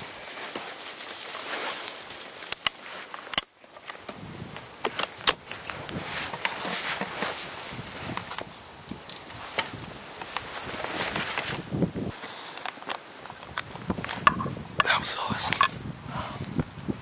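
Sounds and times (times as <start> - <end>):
clothing and gear rustling: 0.0 - 14.6
sharp rifle clicks and knocks: 4.8 - 5.7, 12.6 - 15.7.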